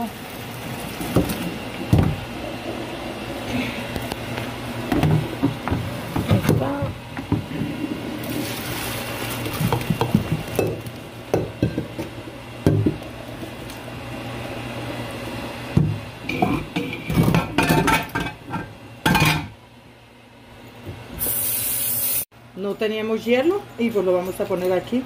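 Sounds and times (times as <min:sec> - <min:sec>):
pot clattering against sink: 0:15.8 - 0:19.6.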